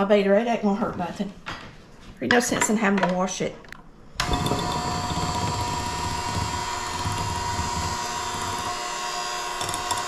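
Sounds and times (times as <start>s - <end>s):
electric hand mixer whining: 4.2s - 10.0s.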